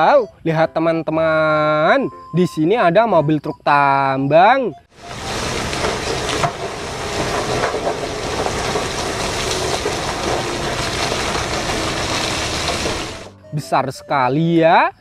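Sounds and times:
rock and gravel tumbling: 5.0s - 13.3s.

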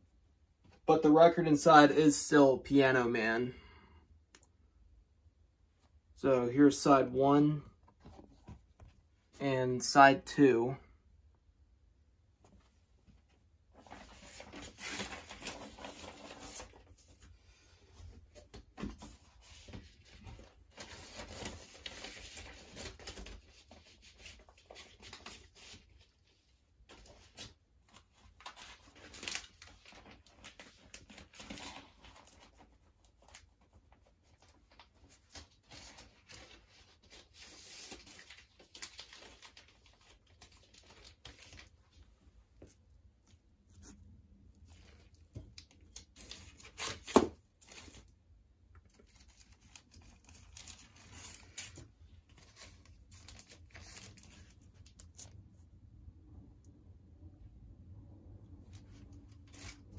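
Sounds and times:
paper and cardboard rustling: 12.4s - 48.2s, 48.8s - 55.4s, 58.6s - 59.9s.

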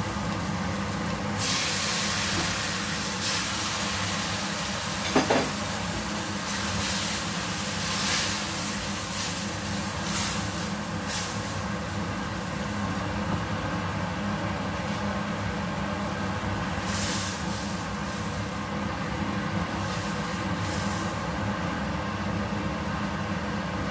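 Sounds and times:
spice paste sizzling in a wok: 0.0s - 13.2s, 16.1s - 22.6s.

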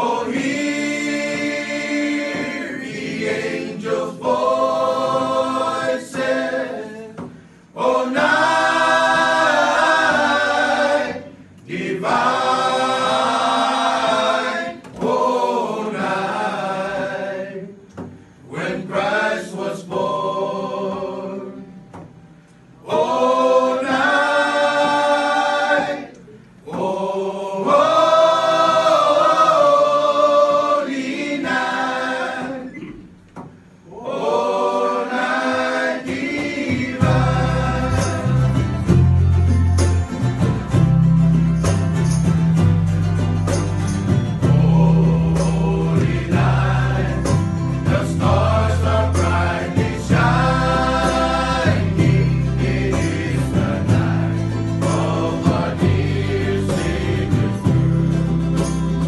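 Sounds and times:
group singing a carol: 0.0s - 39.3s, 43.5s - 59.0s
strummed ukuleles and guitars: 36.0s - 59.0s.

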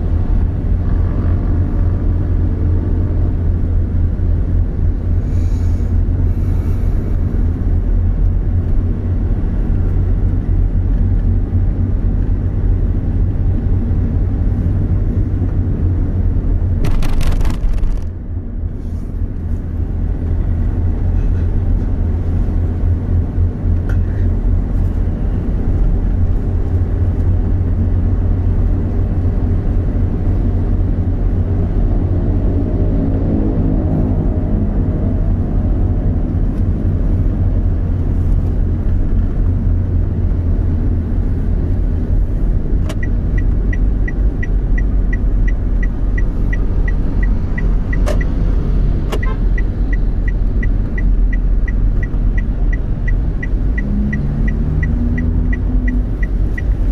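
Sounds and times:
vehicle rumble on road: 0.0s - 56.9s
rapid clatter of clicks: 16.8s - 18.1s.

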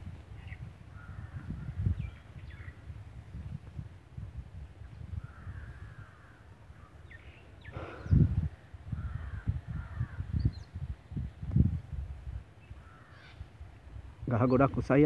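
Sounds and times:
low microphone rumble: 0.0s - 14.2s
crows cawing: 0.9s - 1.8s, 5.2s - 7.0s, 7.7s - 10.3s, 12.8s - 13.5s.

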